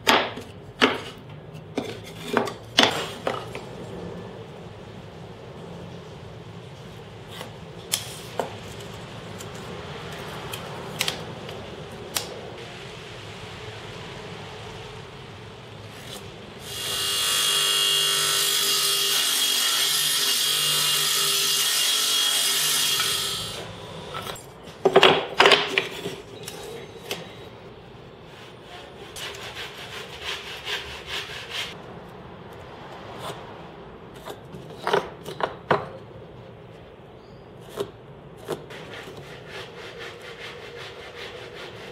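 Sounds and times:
wood pieces knocking: 0:24.2 - 0:26.2.

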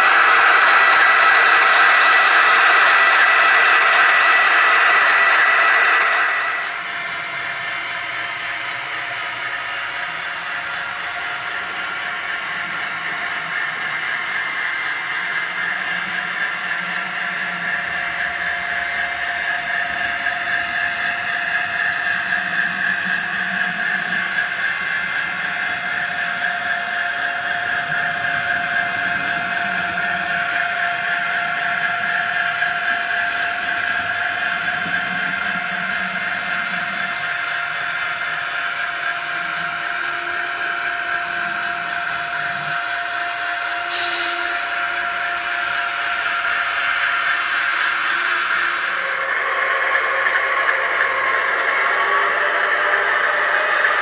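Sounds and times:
drive motor whine: 0:00.0 - 0:54.0
model locomotive engine sound: 0:00.0 - 0:54.0.

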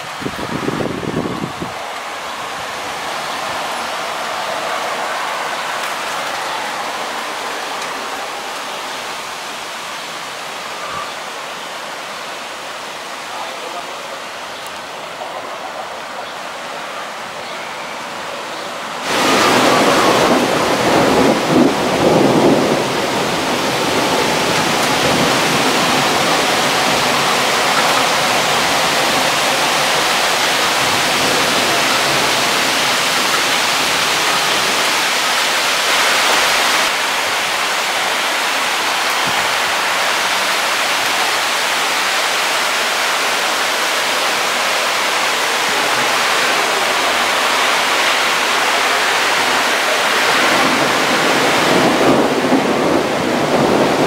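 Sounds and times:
heavy rain hissing: 0:00.0 - 0:54.0
thunder rumbling: 0:19.0 - 0:35.0, 0:45.6 - 0:54.0.

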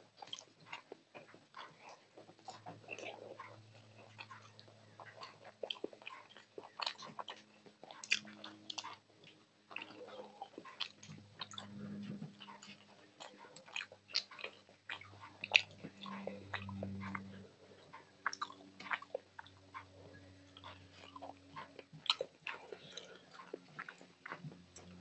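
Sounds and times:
wet chewing and lip-smacking: 0:00.0 - 0:25.0
low hum: 0:09.9 - 0:13.8, 0:14.8 - 0:25.0.

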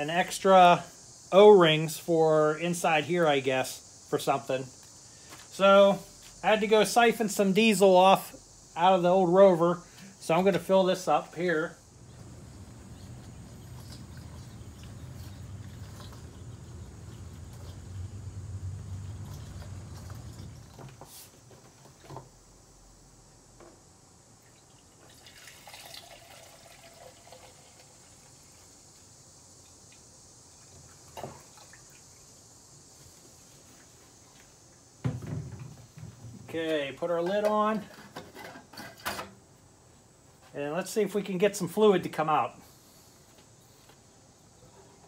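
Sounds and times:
fuel being poured: 0:24.4 - 0:32.4.

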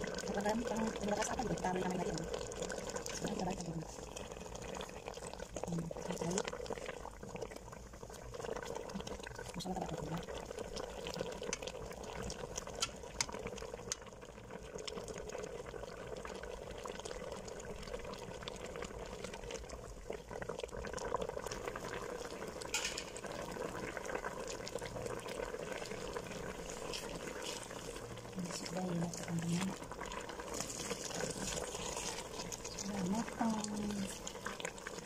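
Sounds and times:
curry sauce bubbling in a pot: 0:00.0 - 0:35.0
utensil scraping a pot: 0:22.7 - 0:23.3, 0:25.8 - 0:34.7.

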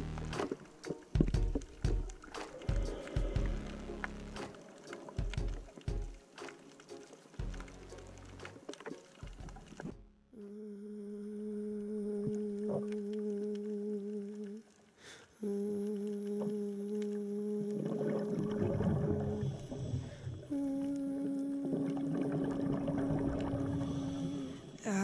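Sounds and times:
person humming: 0:10.4 - 0:14.6, 0:15.4 - 0:18.0, 0:20.5 - 0:22.6, 0:23.7 - 0:25.0.

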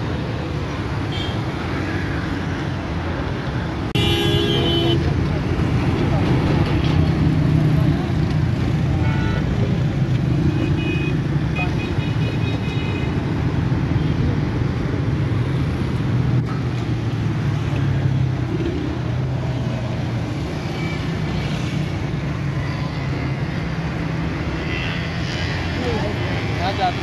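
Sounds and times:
roadside traffic: 0:00.0 - 0:27.0.

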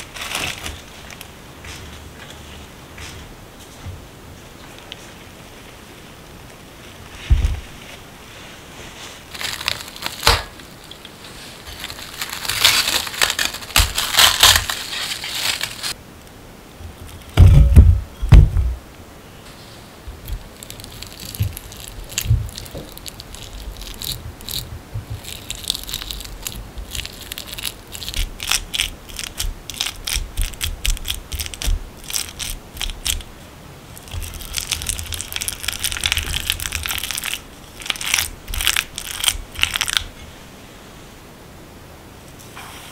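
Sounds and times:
cling wrap crinkling: 0:00.0 - 0:03.8, 0:06.8 - 0:16.0, 0:19.5 - 0:40.2
heavy thump: 0:07.2 - 0:07.8, 0:17.4 - 0:18.8.

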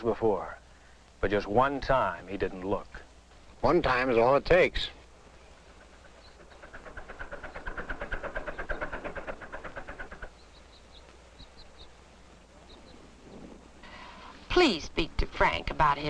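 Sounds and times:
fast mechanical clatter: 0:05.7 - 0:10.5
faint high chirps: 0:10.3 - 0:14.3.

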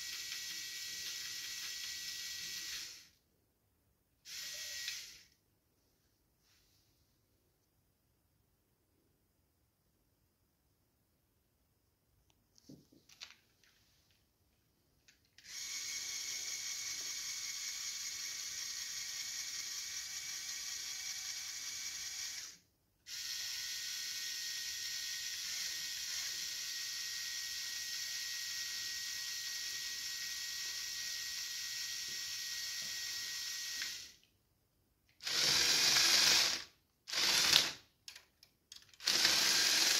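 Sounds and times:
toy motor gear whine: 0:00.0 - 0:03.2, 0:04.3 - 0:05.4, 0:15.4 - 0:34.2, 0:35.2 - 0:38.2, 0:38.9 - 0:39.9.

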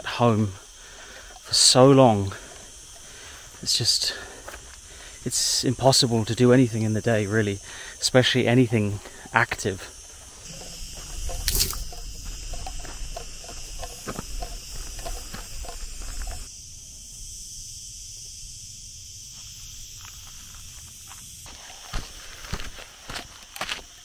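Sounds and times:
footsteps on a dirt path: 0:00.0 - 0:05.4, 0:08.0 - 0:16.5, 0:19.3 - 0:24.0
insects chirring: 0:00.0 - 0:24.0.

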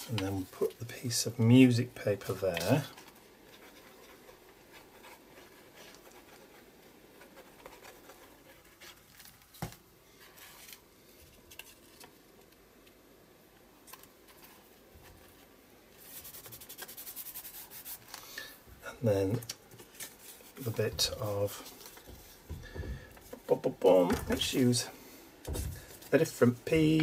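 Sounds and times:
fingers rubbing paper: 0:16.0 - 0:18.1.

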